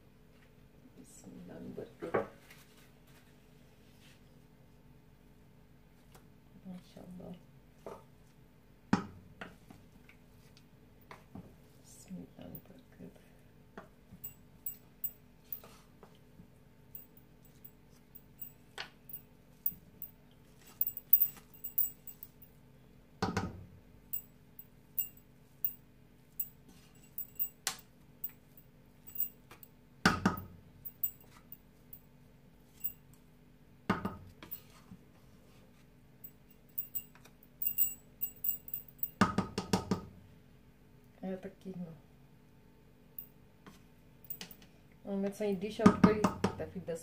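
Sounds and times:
steady low hum: 16.4s - 23.1s, 23.8s - 33.1s, 36.2s - 39.2s.

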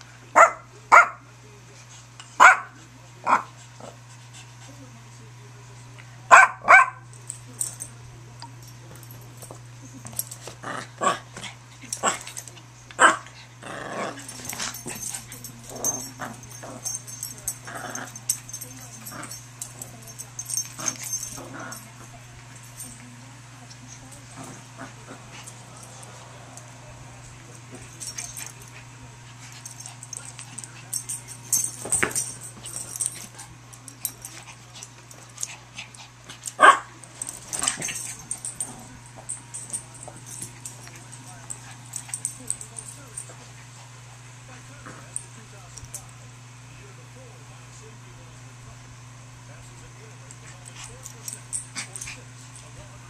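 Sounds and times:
small dogs barking: 0.3s - 1.2s, 2.4s - 3.5s, 6.3s - 7.1s, 13.0s - 13.3s, 36.5s - 38.6s
dogs growling: 10.2s - 22.8s, 23.8s - 33.4s, 34.0s - 45.3s.

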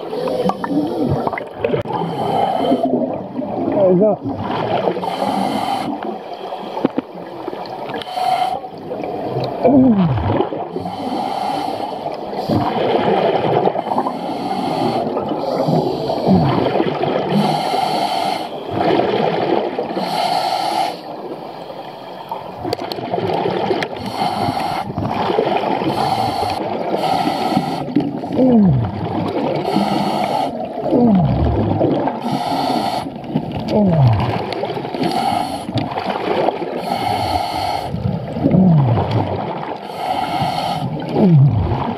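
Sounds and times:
underwater regulator breathing: 0.0s - 3.2s, 4.9s - 7.0s, 7.9s - 9.0s, 10.7s - 12.8s, 13.6s - 16.7s, 17.3s - 18.7s, 19.9s - 21.5s, 23.8s - 25.2s, 25.8s - 36.0s, 36.7s - 41.9s
exhaled bubbles gurgling: 0.0s - 21.4s, 22.0s - 41.9s.

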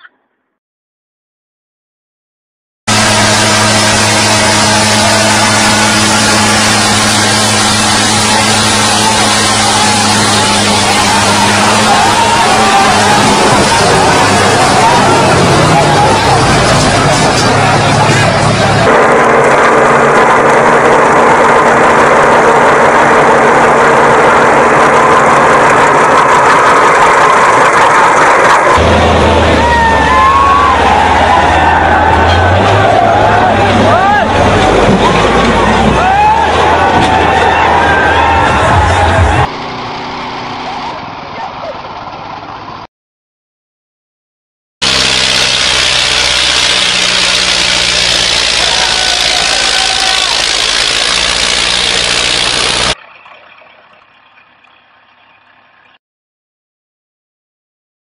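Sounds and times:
tractor diesel engine under load: 2.9s - 42.9s, 44.8s - 53.0s
tyres spinning in dirt: 44.8s - 55.1s.

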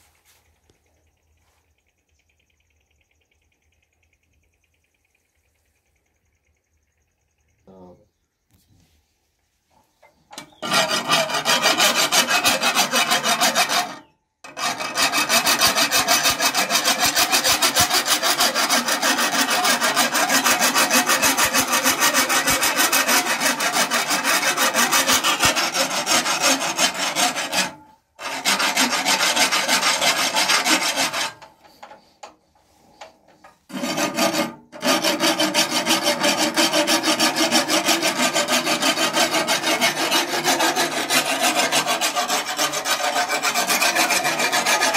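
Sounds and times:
metal tool rasping on blades: 10.3s - 44.9s.

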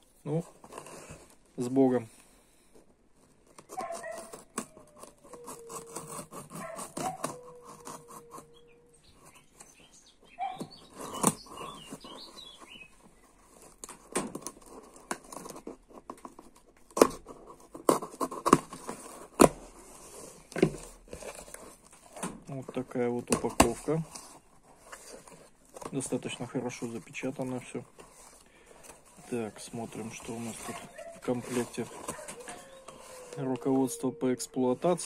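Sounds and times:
cardboard tearing and crackling: 0.3s - 2.1s, 3.2s - 8.6s, 10.4s - 33.9s
knife slitting paper and tape: 3.6s - 8.5s
cardboard snapping: 10.6s - 12.2s, 13.6s - 19.8s.

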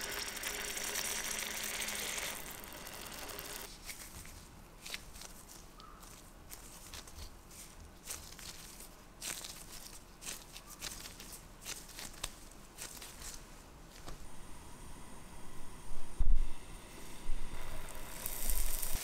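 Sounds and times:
dough squishing: 0.0s - 14.2s
small crackles: 0.0s - 14.2s, 17.5s - 19.0s.

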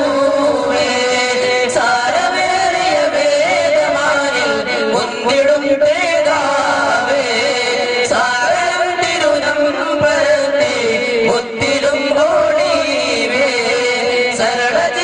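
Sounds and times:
man singing devotional song: 0.0s - 15.0s.

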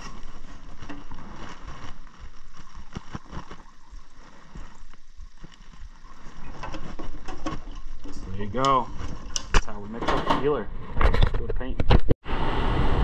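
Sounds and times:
liquid pouring: 0.0s - 9.5s.

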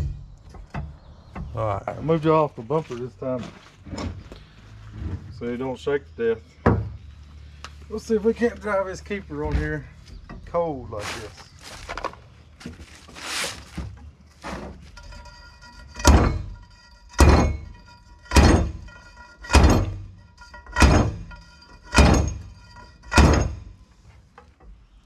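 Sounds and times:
steel pipe striking metal: 15.0s - 23.8s.

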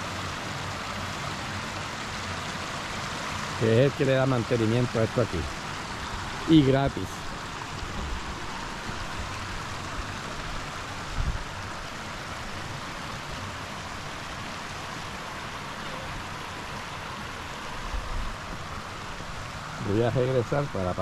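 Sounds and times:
river rushing over stones: 0.0s - 21.0s.

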